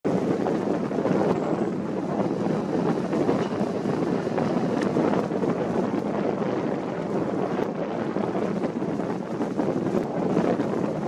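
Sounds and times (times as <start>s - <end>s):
wind blowing across microphone: 0.0s - 11.0s.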